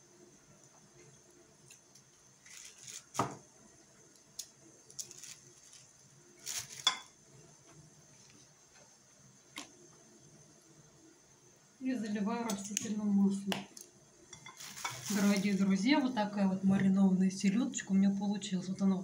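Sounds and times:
soft rustling: 14.5s - 15.8s.

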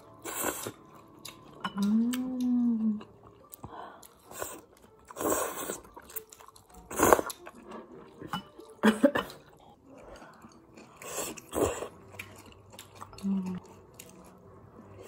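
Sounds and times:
person chewing: 0.0s - 14.5s
person slurping noodles: 4.3s - 6.0s.

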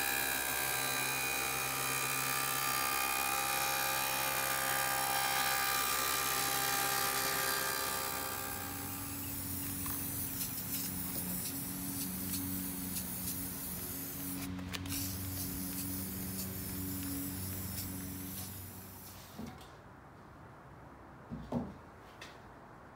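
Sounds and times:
table saw whining: 0.0s - 9.8s
aerosol spray can hissing: 8.7s - 19.2s.

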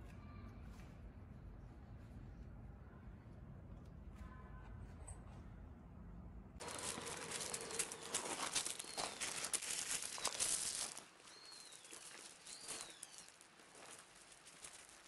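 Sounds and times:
gravel crunching under paws: 6.6s - 15.0s.

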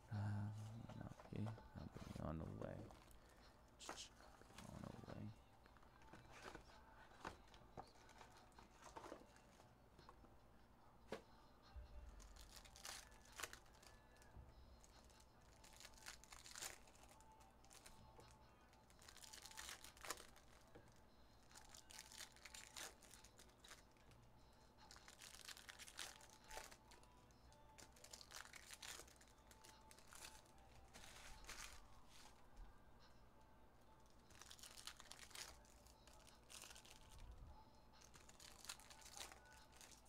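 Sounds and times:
faint background music: 0.0s - 40.0s
foil wrappers crinkling and tearing: 12.2s - 14.0s, 15.5s - 17.9s, 18.9s - 20.6s, 21.5s - 23.8s, 24.9s - 27.0s, 27.8s - 31.8s, 34.3s - 37.2s, 38.0s - 40.0s.

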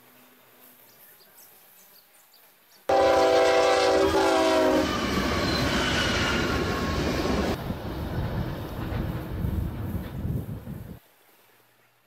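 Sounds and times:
locomotive air horn blast: 2.9s - 7.0s
moving train rumble: 2.9s - 11.0s.

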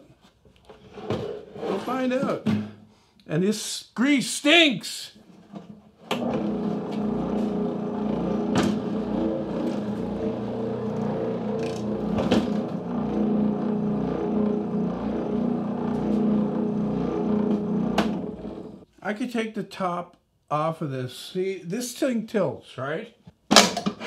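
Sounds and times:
spindle sander motor humming: 6.2s - 18.8s.

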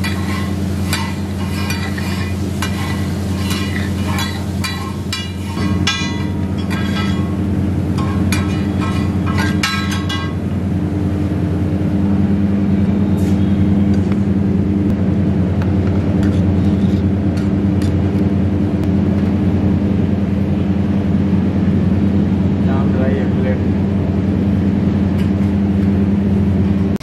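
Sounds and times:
spatula scraping iron griddle: 0.0s - 10.4s, 16.2s - 17.2s
loud low hum: 0.0s - 27.0s.

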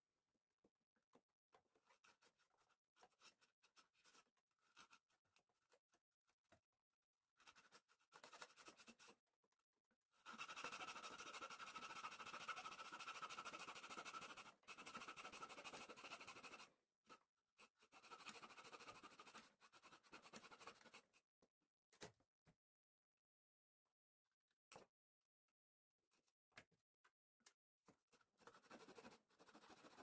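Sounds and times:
hand saw cutting wood: 10.2s - 16.7s.

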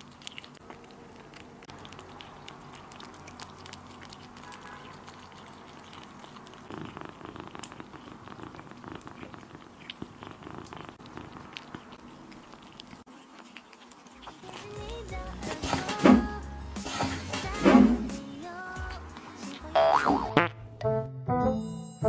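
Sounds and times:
small wet clicks: 0.0s - 15.6s
kittens chewing and lapping: 0.0s - 19.7s
steady purr: 5.4s - 13.6s.

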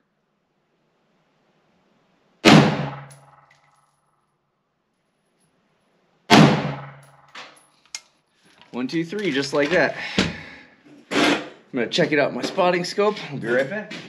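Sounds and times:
rifle shots: 2.4s - 3.5s, 6.3s - 7.3s.

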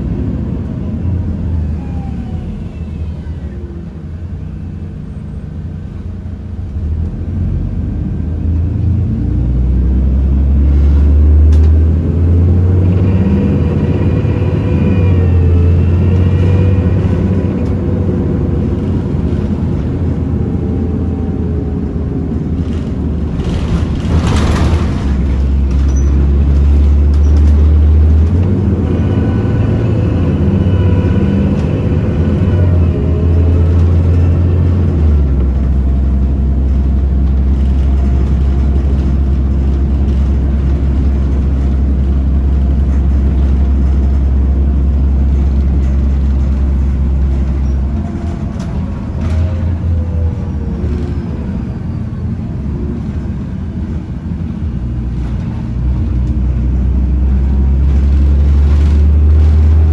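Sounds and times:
bus engine rumble: 0.0s - 59.9s.

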